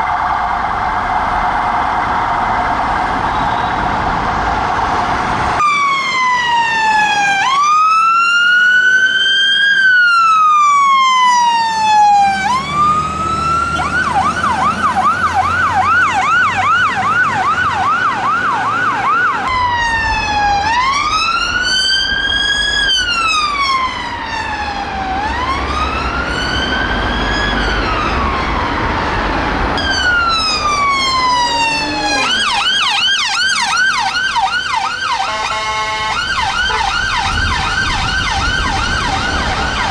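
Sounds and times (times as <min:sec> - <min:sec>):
vehicle engine rumble: 0:00.0 - 0:07.2, 0:10.2 - 0:39.9
siren wailing and yelping: 0:05.6 - 0:39.9.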